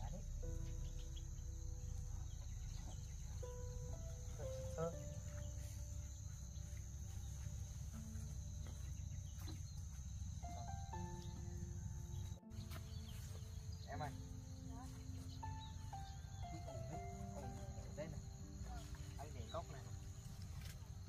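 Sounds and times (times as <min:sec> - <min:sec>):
low rumble: 0:00.0 - 0:10.4
high-pitched insect trill: 0:00.0 - 0:21.0
soft background music: 0:00.0 - 0:21.0.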